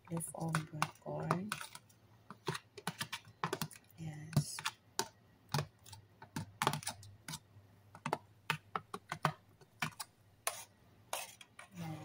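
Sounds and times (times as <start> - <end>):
metal spoon tapping containers: 0.0 - 1.7, 2.3 - 7.4.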